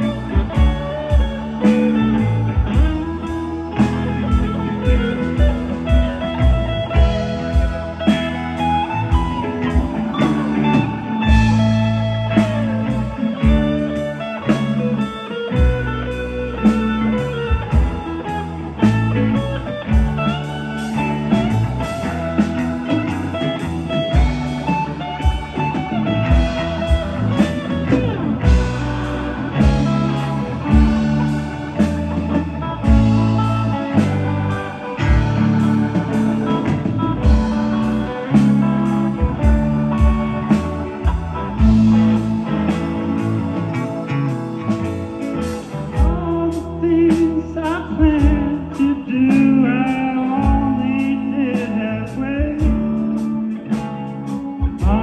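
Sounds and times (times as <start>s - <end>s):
lead electric guitar bending notes: 0.0s - 55.0s
rock band playing: 0.0s - 55.0s.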